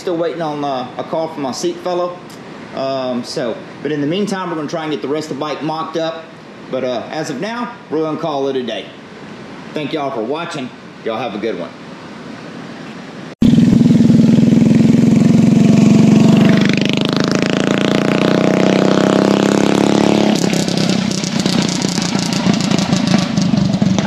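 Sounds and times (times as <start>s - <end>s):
petrol engine running loud: 13.4s - 24.0s.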